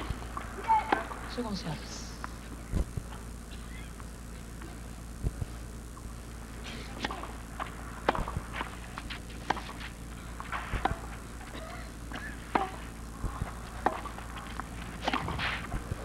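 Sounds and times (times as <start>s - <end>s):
tennis racket hitting ball: 7.0s - 7.4s, 8.0s - 11.2s, 12.4s - 15.6s.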